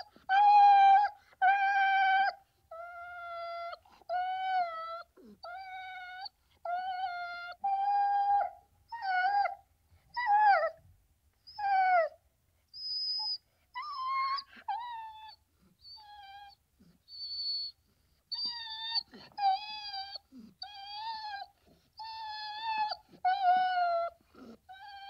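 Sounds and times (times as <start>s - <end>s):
dog yelping whines: 0.0s - 9.6s, 12.8s - 25.0s.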